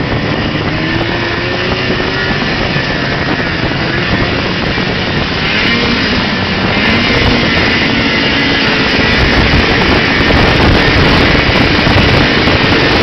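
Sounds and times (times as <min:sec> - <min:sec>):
snowmobile engine running: 0:00.0 - 0:13.0.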